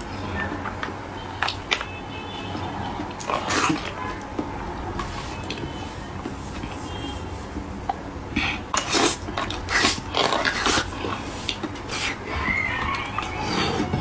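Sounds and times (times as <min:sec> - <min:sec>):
wet slurping from a spoon: 0:08.4 - 0:12.4.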